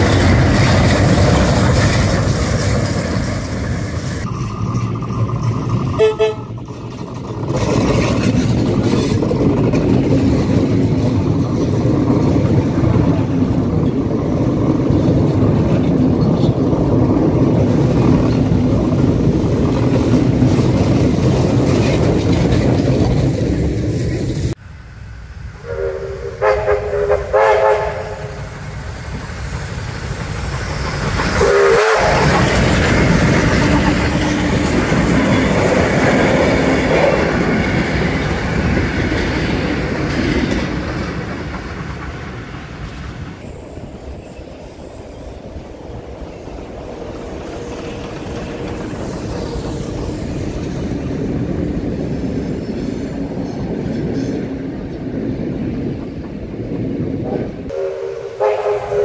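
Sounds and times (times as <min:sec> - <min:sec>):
wheel clatter: 0:00.0 - 0:24.6
steam locomotive working: 0:00.0 - 0:59.0
train carriages rumbling: 0:00.0 - 0:59.0
steam locomotive whistle blasts: 0:06.0 - 0:06.6, 0:25.6 - 0:28.6, 0:31.4 - 0:32.5, 0:57.7 - 0:59.0.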